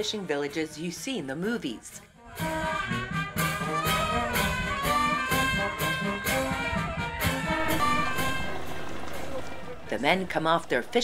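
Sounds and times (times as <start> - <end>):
brass-led tune over a beat: 2.2 - 10.9.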